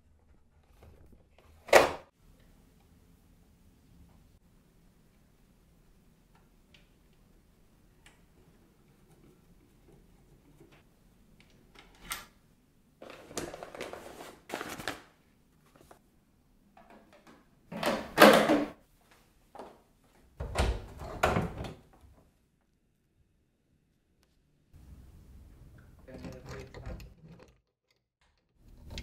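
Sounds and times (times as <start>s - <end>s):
plastic and metal parts scraping: 26.0s - 29.0s.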